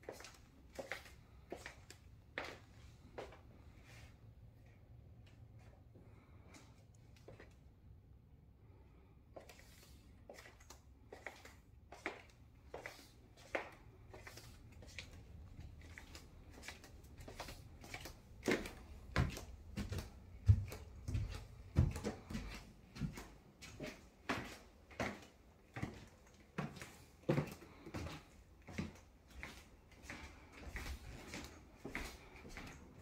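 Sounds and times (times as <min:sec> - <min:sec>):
footsteps walking: 0:00.0 - 0:07.6, 0:09.4 - 0:33.0
footsteps climbing stairs: 0:18.4 - 0:29.0.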